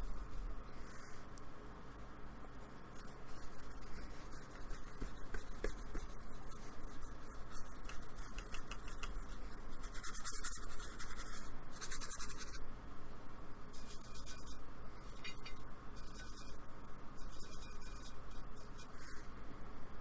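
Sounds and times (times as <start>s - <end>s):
paintbrush scrubbing a board: 3.2s - 12.6s, 13.8s - 14.6s.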